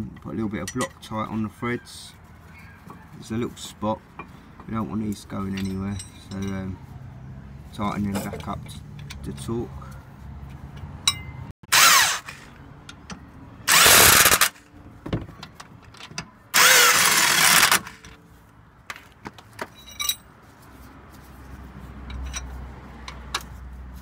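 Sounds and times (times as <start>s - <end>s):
impact wrench running: 11.7s - 12.5s, 13.7s - 14.6s, 16.6s - 18.1s.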